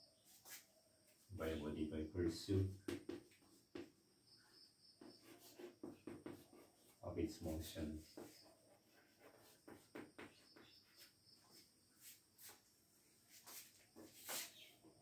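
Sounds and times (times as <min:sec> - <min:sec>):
chalk on blackboard: 0:00.3 - 0:00.7, 0:05.0 - 0:12.6, 0:13.3 - 0:14.9.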